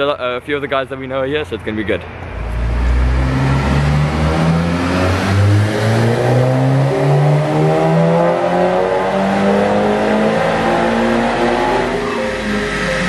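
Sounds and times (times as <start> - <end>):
car engine revving: 2.1 - 13.0
music with bass line: 2.6 - 13.0.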